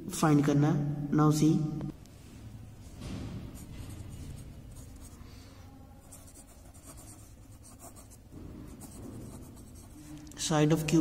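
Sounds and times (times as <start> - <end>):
pen scratching on paper: 3.6 - 5.2, 6.0 - 10.2.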